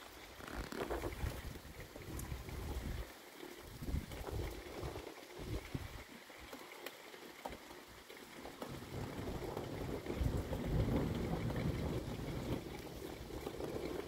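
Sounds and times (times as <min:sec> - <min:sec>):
steady rain falling: 0:00.0 - 0:14.0
thunder rumble: 0:08.7 - 0:14.0.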